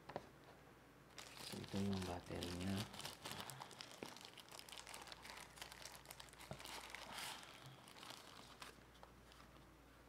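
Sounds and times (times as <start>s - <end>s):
plastic wrapping crinkling: 1.1s - 9.7s.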